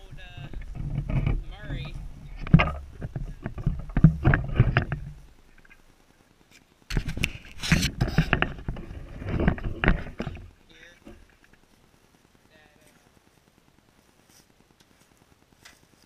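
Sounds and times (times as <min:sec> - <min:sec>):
camera handling rustling and knocks: 0:00.4 - 0:05.8, 0:06.9 - 0:10.5
footsteps crunching dry grass: 0:12.8 - 0:16.0.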